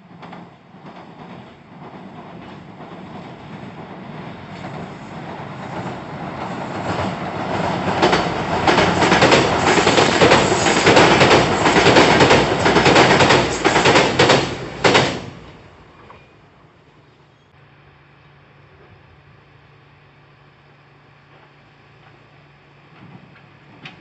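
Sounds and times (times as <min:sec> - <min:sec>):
train rumbling over bridge: 0:00.0 - 0:24.0
train wheels clattering: 0:00.1 - 0:15.4.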